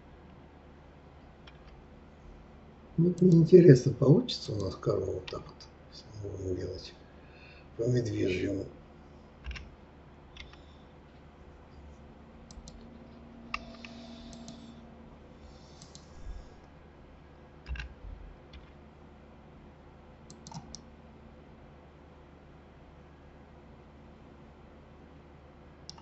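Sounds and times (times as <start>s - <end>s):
computer keyboard and mouse clicks: 1.4s - 1.8s, 9.4s - 9.7s, 10.3s - 10.8s, 12.5s - 12.9s, 13.5s - 14.7s, 15.6s - 16.2s, 17.6s - 18.8s, 20.3s - 20.8s.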